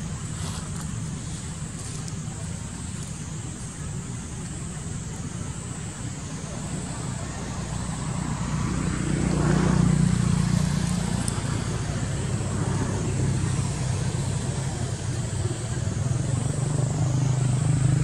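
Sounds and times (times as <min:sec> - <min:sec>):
vehicle engine passing: 0:06.4 - 0:18.0.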